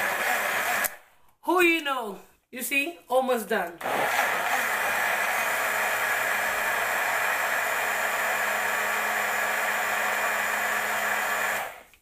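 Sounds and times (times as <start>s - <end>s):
blender motor whirring: 0.0s - 1.0s, 3.8s - 12.0s.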